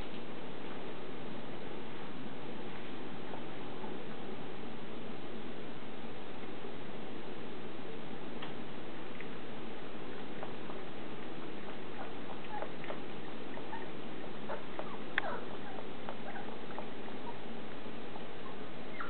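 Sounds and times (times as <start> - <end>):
steady background hiss: 0.0 - 19.0
puppies squeaking and whining: 12.0 - 13.9, 14.5 - 17.4, 18.4 - 19.0.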